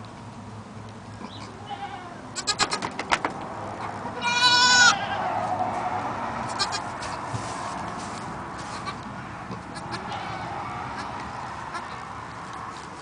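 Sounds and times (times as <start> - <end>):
goat bleating: 1.2 - 2.9, 3.8 - 5.4, 6.4 - 7.0, 8.6 - 12.0
sharp clicks and rustles: 2.6 - 3.6.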